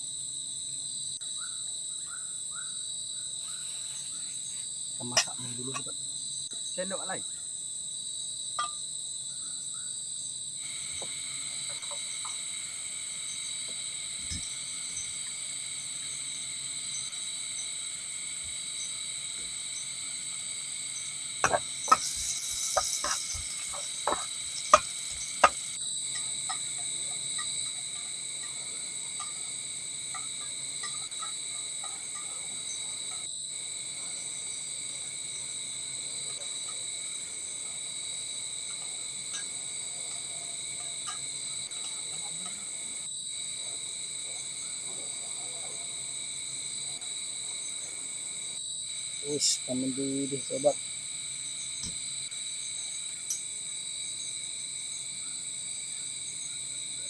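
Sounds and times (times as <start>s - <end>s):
night insects chorus: 0.0s - 57.0s
sharp clicks and knocks: 21.4s - 26.6s.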